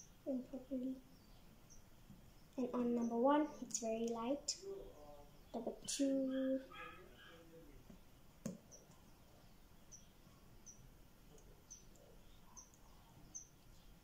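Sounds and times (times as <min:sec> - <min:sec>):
faint high-pitched chirps: 0:00.0 - 0:03.8, 0:08.6 - 0:14.0.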